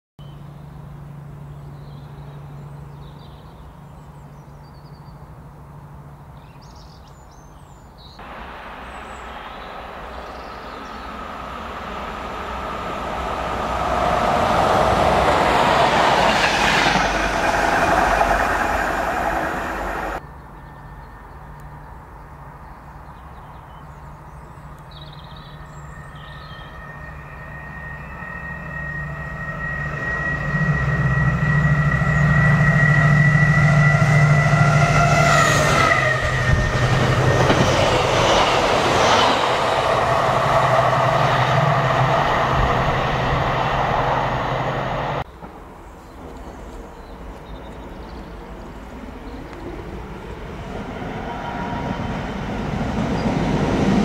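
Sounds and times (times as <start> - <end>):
approaching train whine: 8.2 - 20.2, 24.7 - 54.0
train wheels rumbling on rail: 8.2 - 20.2, 25.5 - 54.0.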